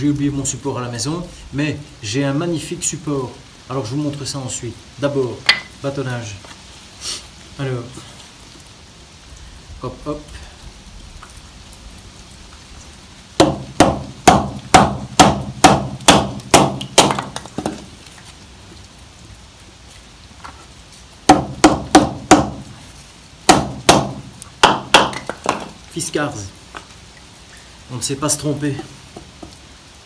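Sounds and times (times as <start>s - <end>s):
wooden baton striking hatchet: 13.4s - 17.8s, 21.3s - 22.6s, 23.5s - 25.7s.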